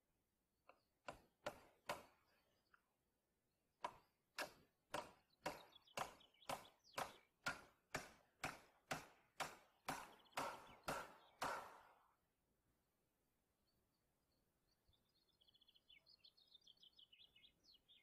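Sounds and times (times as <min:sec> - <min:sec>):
hammer driving nail into wood: 0:03.8 - 0:11.9.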